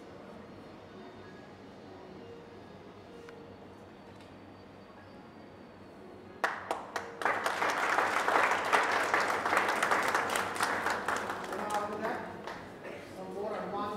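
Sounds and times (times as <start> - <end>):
audience applauding: 6.4 - 12.7.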